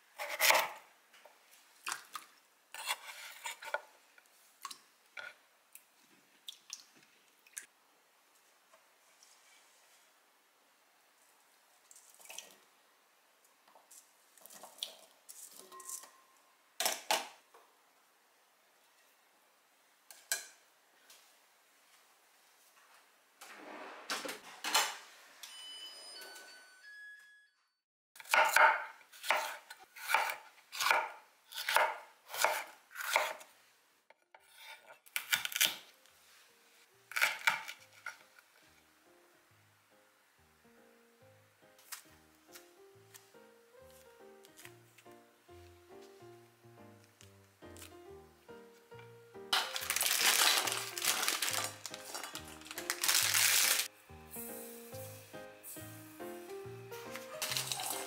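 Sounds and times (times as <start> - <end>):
knife cutting on wooden board: 2.8 - 3.8
strainer clatter and scraping: 23.5 - 24.7, 49.6 - 53.9
potato cubes tumbling into pot: 49.6 - 53.9.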